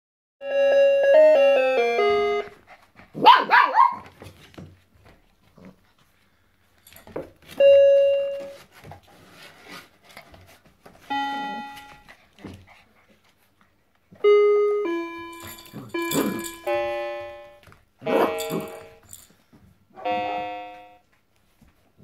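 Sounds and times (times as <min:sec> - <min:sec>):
toy keyboard notes: 0:00.4 - 0:02.6, 0:11.0 - 0:12.1, 0:14.2 - 0:19.3, 0:20.0 - 0:21.0
puppy yipping and barking: 0:03.2 - 0:04.1, 0:18.0 - 0:18.8.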